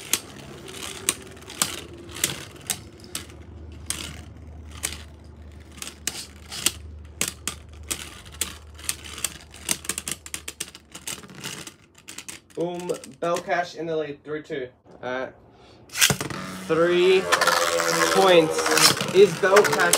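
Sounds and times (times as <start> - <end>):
spinning tops whirring: 0.0 - 11.4, 15.9 - 19.9
spinning tops clacking together: 15.9 - 19.9.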